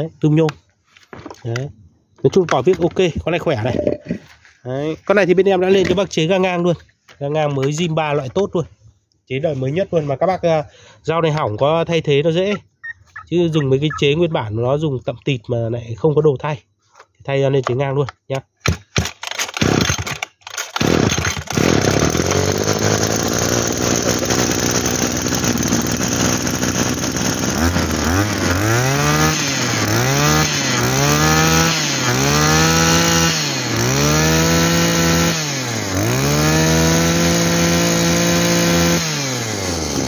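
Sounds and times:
brush-cutter engine revving: 19.0 - 40.0.

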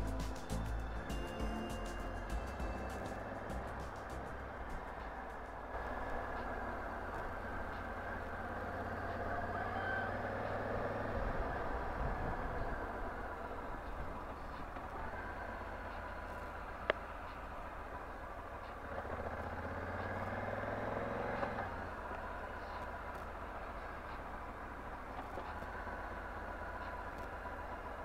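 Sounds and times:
road and wind noise: 0.0 - 28.0
motorcycle engine running: 10.2 - 28.0.

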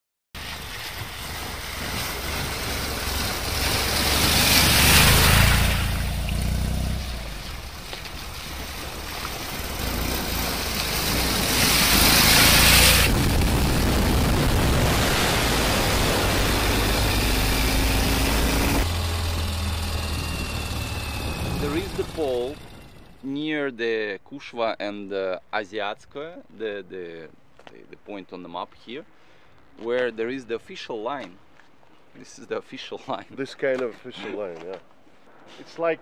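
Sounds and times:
motorcycle engine running: 0.4 - 23.2
water splashing: 0.4 - 23.2
wind rushing: 9.6 - 18.9.

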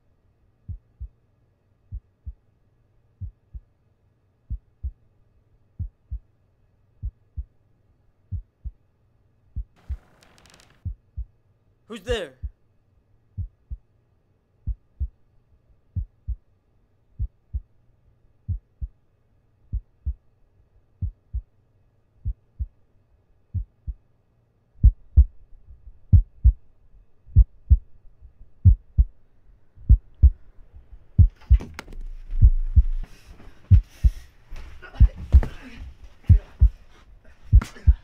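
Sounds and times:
heartbeat thumps: 0.7 - 1.1, 1.9 - 2.4, 3.2 - 3.7, 4.5 - 5.0, 5.8 - 6.3, 7.0 - 7.5, 8.3 - 8.8, 9.6 - 10.0, 10.8 - 11.3, 13.4 - 13.8, 14.6 - 15.2, 15.9 - 16.4, 17.2 - 17.7, 18.5 - 19.0, 19.7 - 20.2, 21.0 - 21.5, 22.2 - 22.8, 23.5 - 24.0, 24.8 - 26.6, 27.3 - 29.2, 29.8 - 38.0
low rumble: 29.8 - 33.8.

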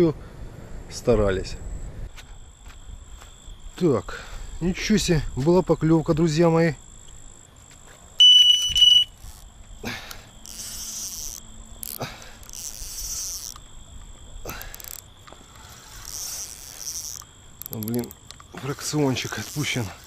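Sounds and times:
crickets trilling: 0.0 - 20.0
bite alarm high tone: 8.2 - 9.2
sharp clicks: 8.4 - 19.8.

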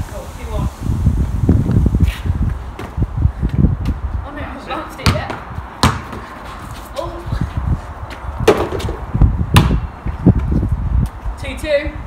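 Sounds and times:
basketball bouncing on paving: 4.9 - 6.5, 8.1 - 10.5
basketball hitting hoop: 5.0 - 6.2, 9.6 - 9.8.

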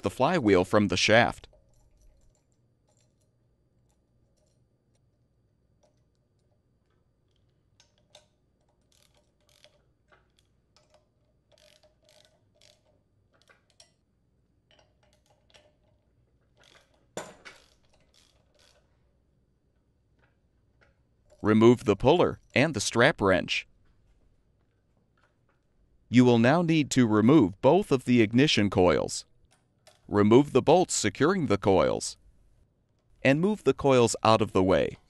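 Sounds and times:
socket ratchet clicking: 5.8 - 14.0.

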